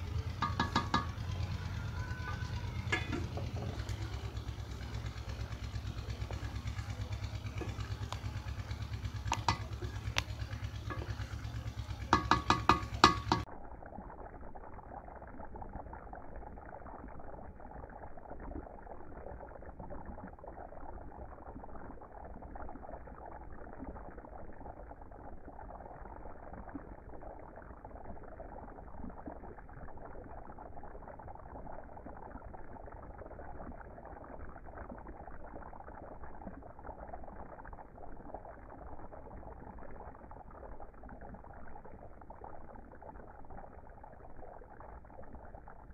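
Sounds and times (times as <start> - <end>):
low rumble: 0.0 - 12.1
rice bubbling in boiling broth: 0.0 - 45.9.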